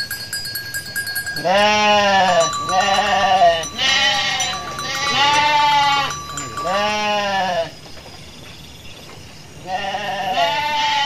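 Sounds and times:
sheep bleating: 0:01.4 - 0:07.7, 0:09.7 - 0:11.0.

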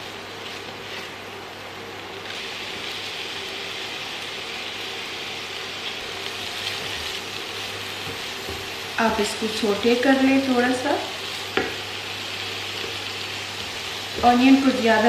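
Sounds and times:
onion sizzling in oil: 0:00.0 - 0:15.0
spatula stirring onion: 0:05.8 - 0:15.0.

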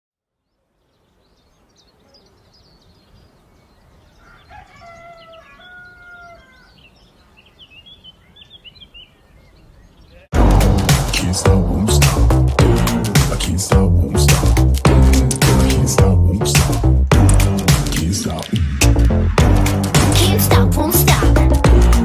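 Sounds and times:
small birds chirping: 0:00.4 - 0:10.3
rooster crowing: 0:04.1 - 0:06.9.

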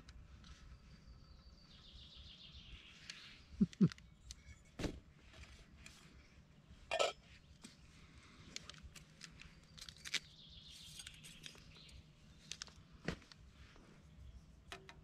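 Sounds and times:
birds chirping: 0:00.7 - 0:04.7.

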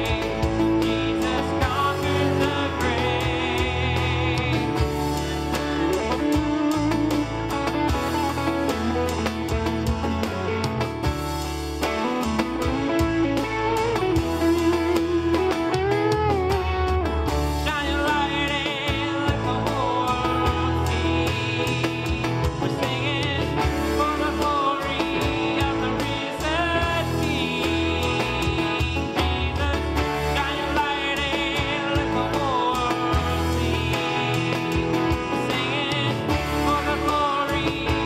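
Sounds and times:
steady bass: 0:00.0 - 0:38.0
worship music with guitars: 0:00.0 - 0:38.0.

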